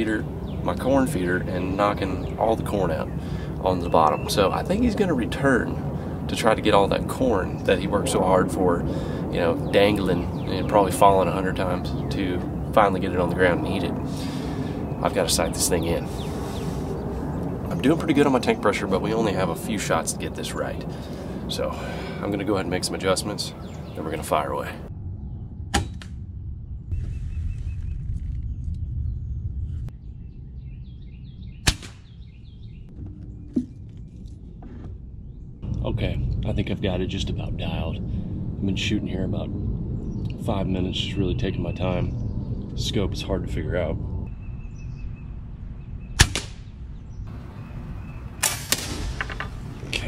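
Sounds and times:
birds chirping: 0.0s - 25.6s, 26.4s - 50.0s
air rifle shot: 31.6s - 32.1s, 46.2s - 46.6s, 48.4s - 49.8s.

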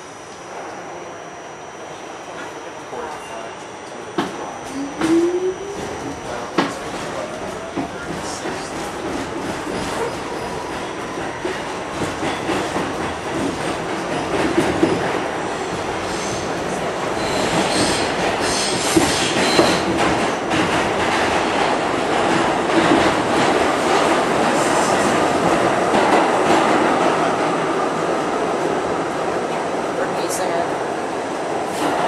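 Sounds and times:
subway car wheels rumbling: 0.0s - 32.0s.

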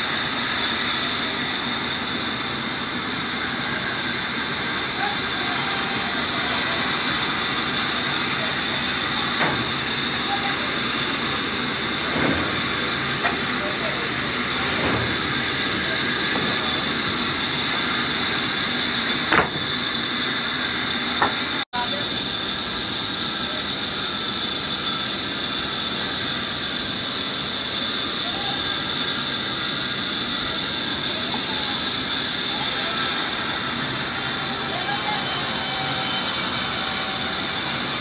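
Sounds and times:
band saw cutting wood: 0.0s - 22.2s.

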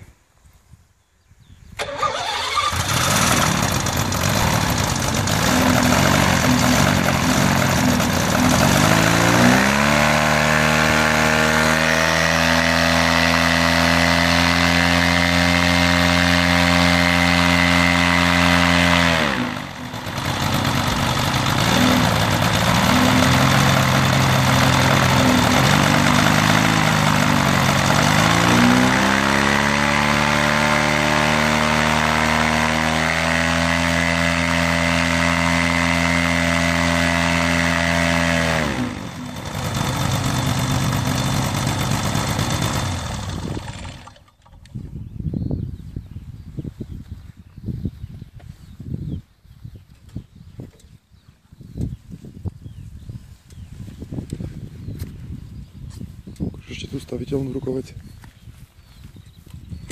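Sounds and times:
paramotor engine revving: 1.8s - 44.5s.

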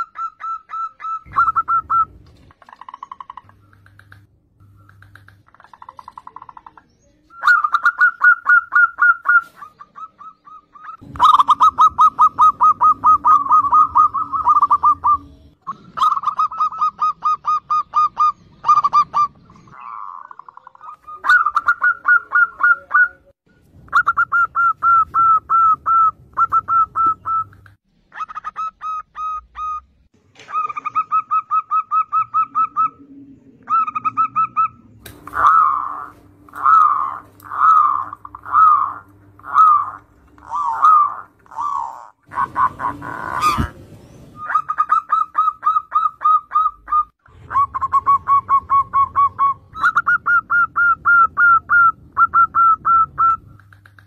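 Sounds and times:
doves cooing: 0.0s - 23.3s, 23.9s - 29.8s, 30.4s - 54.0s.

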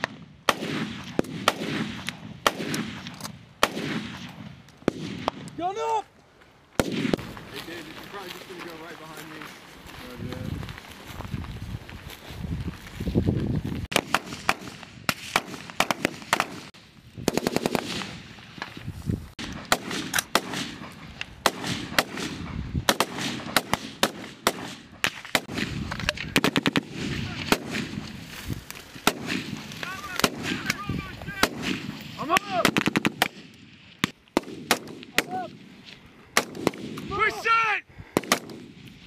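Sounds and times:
rifle single shots: 0.0s - 5.6s, 6.8s - 7.4s, 13.9s - 18.3s, 19.4s - 28.1s, 29.0s - 30.8s, 31.4s - 35.7s, 36.3s - 37.2s, 38.1s - 38.8s
rapid fire bursts: 13.9s - 18.3s, 21.4s - 28.2s, 29.0s - 33.5s.

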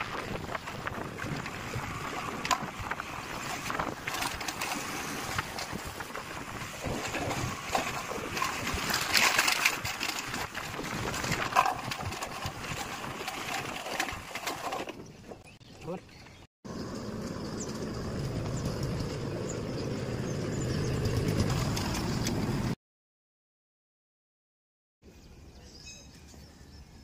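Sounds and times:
wind buffeting microphone: 0.0s - 15.6s
motorcycle engine running: 16.7s - 22.8s.

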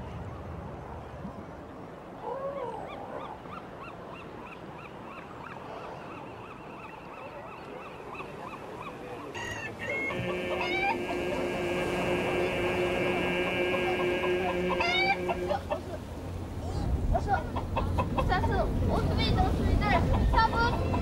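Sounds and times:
honking call: 9.4s - 16.4s
background rush: 9.7s - 21.0s
repeated high call: 9.9s - 15.8s.

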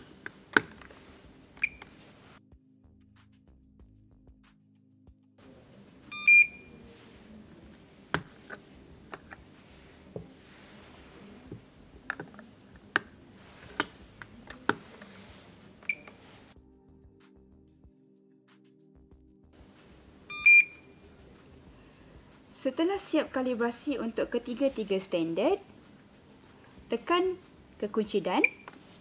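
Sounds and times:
meter beeping: 0.0s - 2.0s, 6.1s - 9.4s, 15.8s - 16.3s, 20.2s - 21.0s, 28.4s - 28.8s
plastic lid clicks and knocks: 12.1s - 12.4s.

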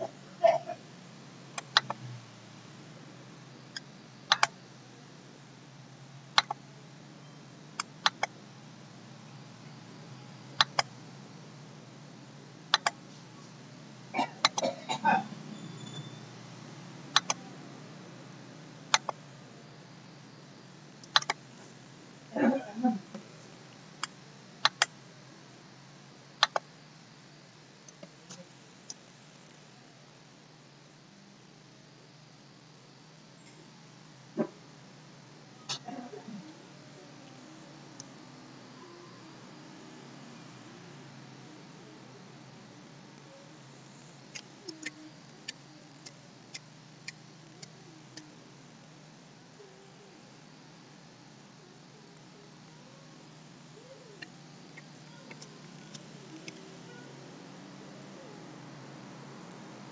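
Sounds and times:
steady low hum: 0.0s - 59.9s
computer mouse clicks: 1.6s - 2.0s, 3.8s - 4.6s, 6.4s - 6.6s, 10.6s - 10.9s, 12.7s - 13.0s, 17.1s - 17.4s, 18.9s - 19.2s, 21.0s - 21.4s, 24.0s - 24.9s, 26.4s - 26.6s
mouse and keyboard clicks: 1.6s - 2.0s, 4.3s - 4.5s, 10.6s - 10.9s, 12.7s - 13.0s, 17.2s - 17.4s, 21.0s - 21.4s, 26.4s - 26.6s.

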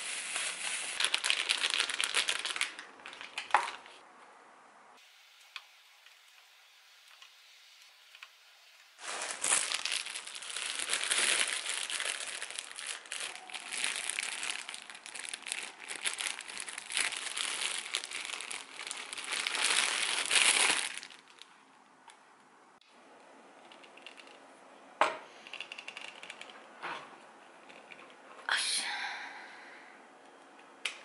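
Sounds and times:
plastic bag crinkling: 0.0s - 4.0s, 9.0s - 21.6s, 25.5s - 26.7s.

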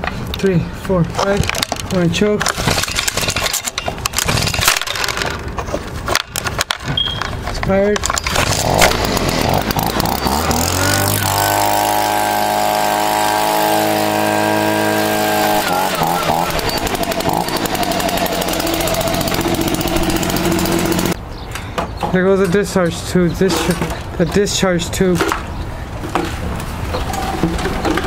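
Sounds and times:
leaf blower engine revving: 8.3s - 21.2s.

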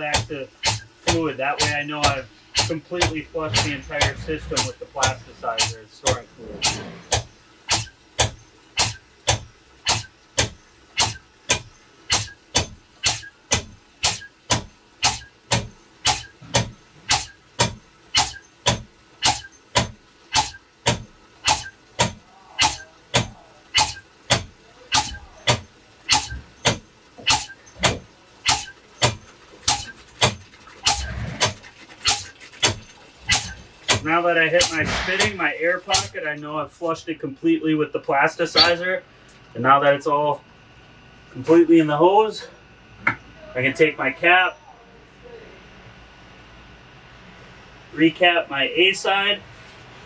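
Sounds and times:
air pump stroking and puffing: 0.0s - 36.2s
hose sputtering and spitting: 0.0s - 36.2s.

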